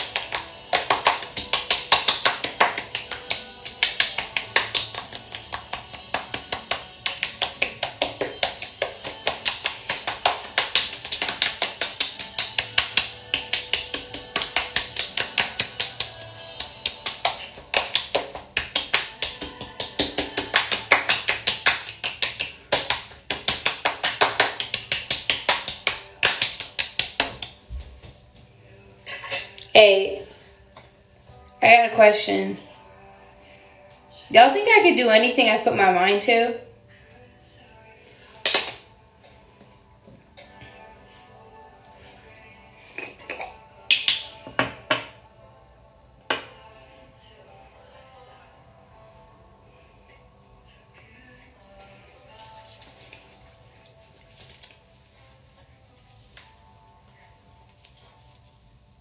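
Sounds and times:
hands patting the face: 0.0 - 28.2, 38.4 - 38.9.

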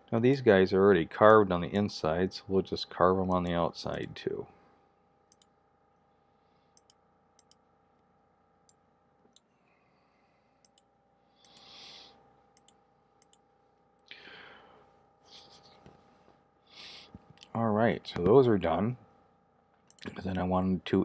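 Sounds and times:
faint steady hum: 0.0 - 21.0
faint computer mouse clicks: 5.3 - 5.5, 6.8 - 7.6, 10.6 - 11.7.

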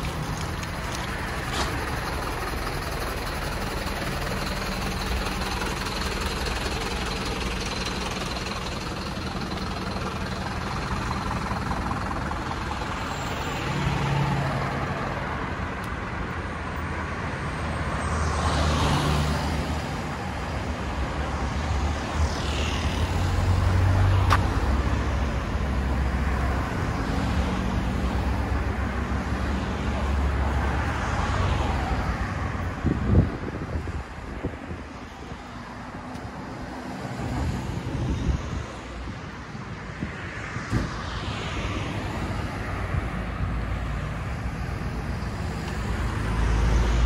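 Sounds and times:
vehicle engines running: 0.0 - 47.0
vehicles passing by: 0.0 - 47.0.

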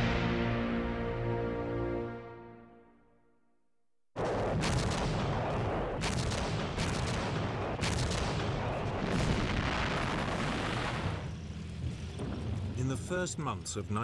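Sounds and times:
field gun shots: 4.2 - 10.3
rumble of gunfire: 4.2 - 11.5.

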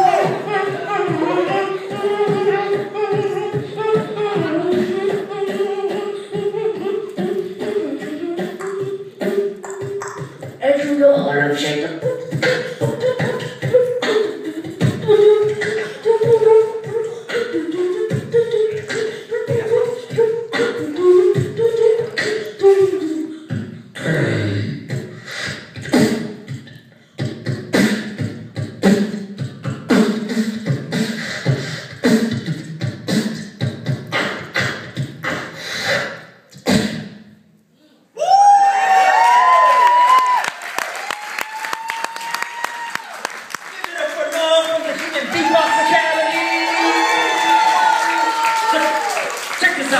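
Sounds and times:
deep beatboxed bass sound: 0.0 - 37.4
boy beatboxing into microphone: 0.0 - 38.6, 43.7 - 49.9
hummed melody: 0.2 - 10.6, 12.0 - 23.5.

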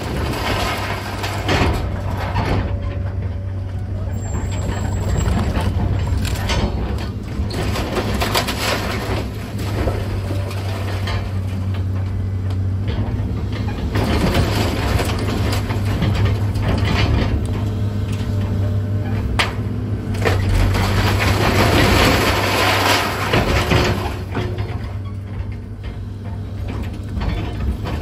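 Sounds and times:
debris crunching and cracking: 0.0 - 3.0, 4.2 - 12.2, 13.6 - 18.3, 19.3 - 25.0
excavator diesel engine running: 0.0 - 28.0.

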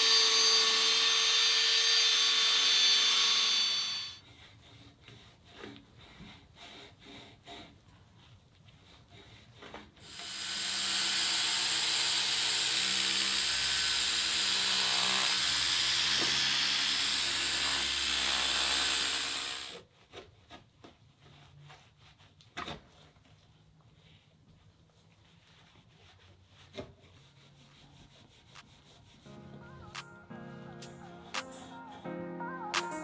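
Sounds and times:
power tool polishing metal: 0.0 - 4.2, 10.0 - 19.7
towel wiping: 20.6 - 29.3.

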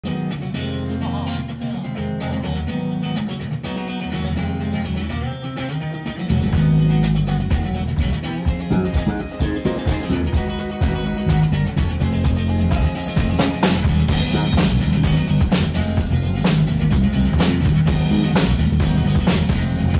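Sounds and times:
bass guitar: 0.0 - 19.9
electric guitar: 0.0 - 19.9
drums and cymbals: 6.4 - 19.9.

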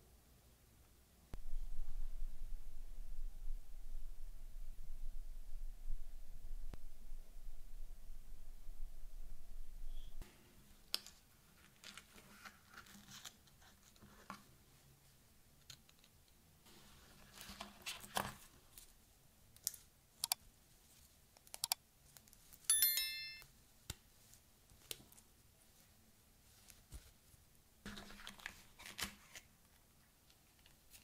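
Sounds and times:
bright bell-like chime: 22.7 - 23.4
paper and cardboard rustling: 27.9 - 29.5.

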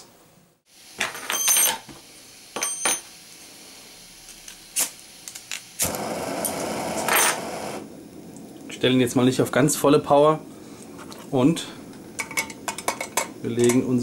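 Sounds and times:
gas burner hissing: 0.6 - 1.1, 1.7 - 14.0
metal clinking and ringing: 1.1 - 1.8.

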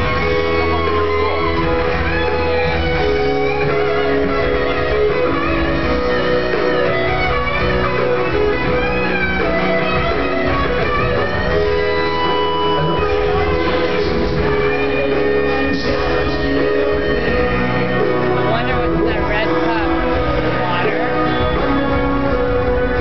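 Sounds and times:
electric guitar lead lines: 0.0 - 23.0
live rock band playing: 0.0 - 23.0.

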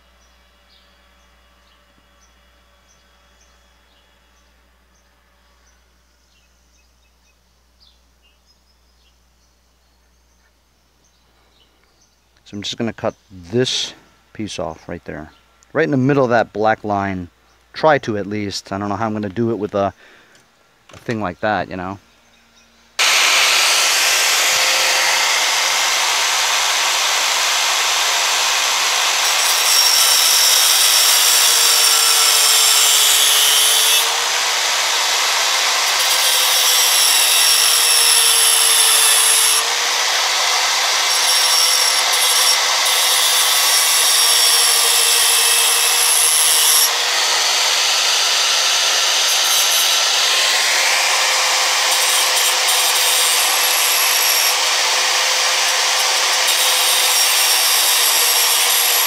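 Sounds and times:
angle grinder cutting sheet metal: 23.0 - 59.0.

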